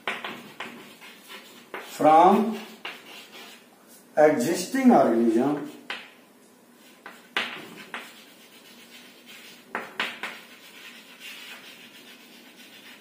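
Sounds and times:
chalk tapping on chalkboard: 0.0s - 3.6s, 5.7s - 6.2s, 6.8s - 13.0s
chalk scratching on chalkboard: 0.0s - 3.7s, 6.8s - 13.0s.

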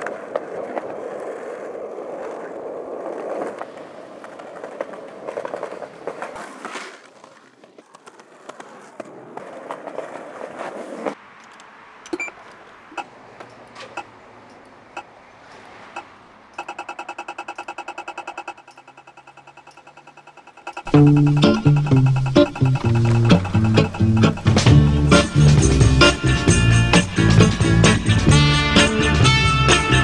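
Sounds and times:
skateboard wheels rolling on pavement: 0.0s - 17.3s, 20.8s - 30.0s
skateboard clacking on ground: 0.0s - 27.4s
scattered clicks: 11.4s - 26.2s.

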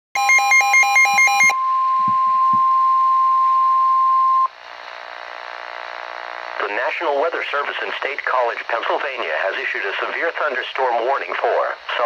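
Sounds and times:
high warning alarm tone: 0.2s - 4.5s
radio hiss: 4.6s - 12.0s.

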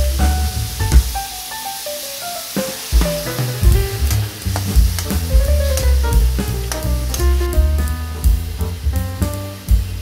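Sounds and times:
food sizzling in a wok: 0.0s - 10.0s
sharp knock: 0.9s - 1.2s
background music with bass beat: 3.0s - 10.0s.

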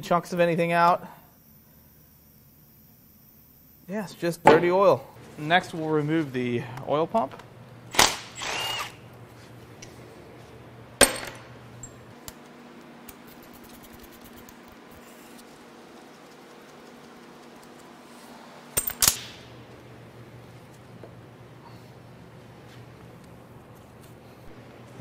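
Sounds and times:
impact wrench whirring: 7.9s - 9.1s.

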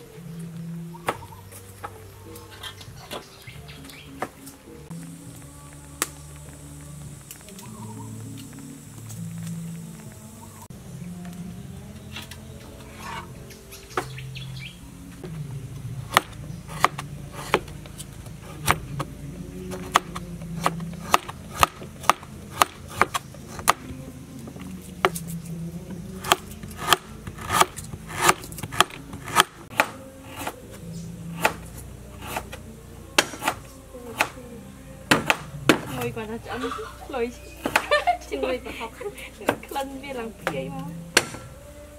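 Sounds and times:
cleaver chopping on wooden board: 16.1s - 17.8s, 19.7s - 23.9s, 26.2s - 30.6s, 31.4s - 32.5s, 33.2s - 34.4s, 35.1s - 36.0s, 41.2s - 41.5s.

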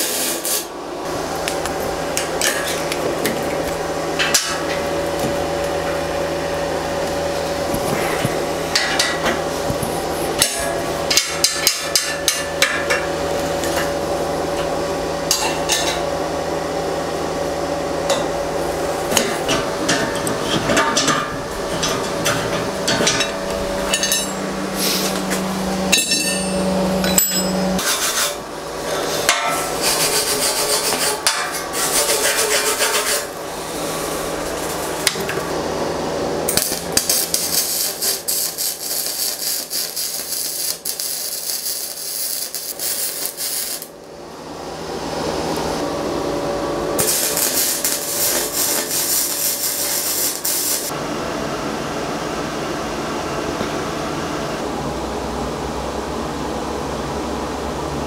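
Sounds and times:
electric arc welding crackle: 0.0s - 0.7s, 31.8s - 35.5s, 36.5s - 44.1s, 47.0s - 50.9s
hammer striking metal tube: 23.9s - 24.4s, 25.9s - 27.9s, 29.3s - 29.7s.

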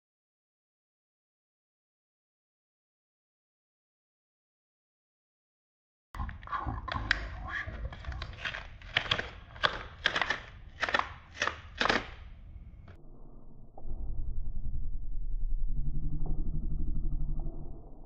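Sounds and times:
paper tearing: 7.0s - 12.2s.

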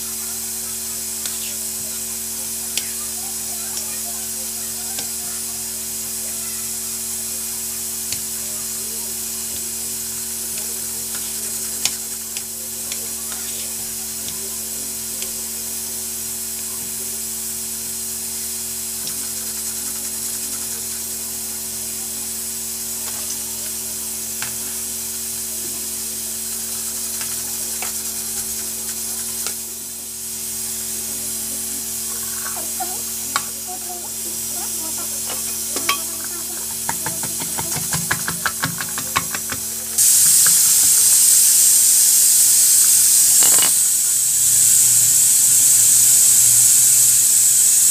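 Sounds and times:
steady hiss: 0.0s - 47.9s
knife chopping on stone countertop: 36.8s - 39.6s.

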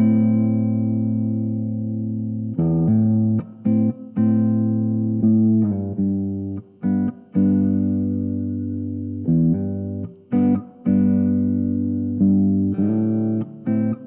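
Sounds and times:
electric guitar chords: 0.0s - 14.0s.

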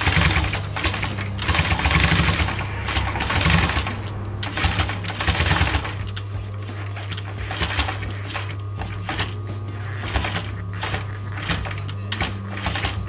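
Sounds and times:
sewing machine needle clattering: 0.0s - 6.0s, 10.0s - 13.0s
steady low hum: 0.0s - 13.0s.

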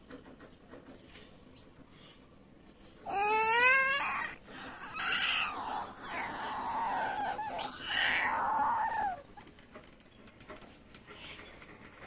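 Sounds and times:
toddler whining and crying: 3.0s - 9.3s.

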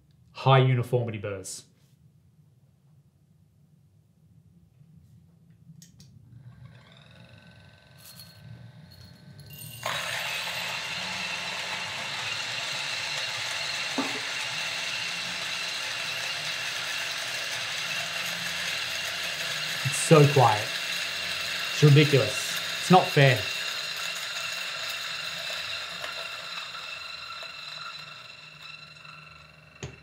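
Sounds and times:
man speaking: 0.4s - 1.6s, 19.8s - 20.8s, 21.8s - 23.5s
faint motor whine: 4.8s - 30.0s
coffee grinder grinding beans: 6.2s - 30.0s.

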